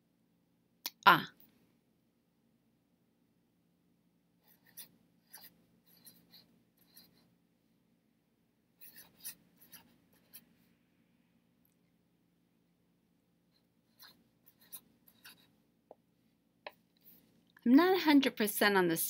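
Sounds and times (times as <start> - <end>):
marker scratching on paper: 4.4 - 7.3, 8.8 - 10.6, 13.5 - 15.6.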